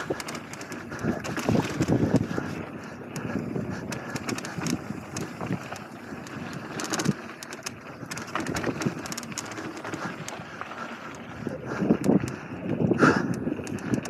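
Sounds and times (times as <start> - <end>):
bike rattling over bumps: 0.0 - 14.0
bike tyres rolling over dirt: 0.0 - 14.0
wind buffeting microphone: 0.0 - 14.0.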